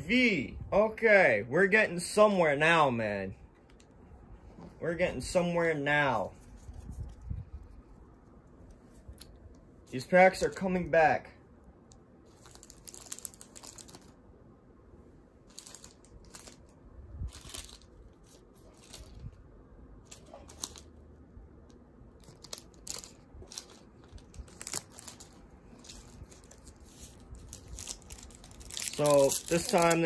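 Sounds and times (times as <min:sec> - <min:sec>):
plastic and foil packaging crinkling: 0:12.3 - 0:14.2, 0:15.4 - 0:19.4, 0:20.0 - 0:21.0, 0:22.1 - 0:30.0.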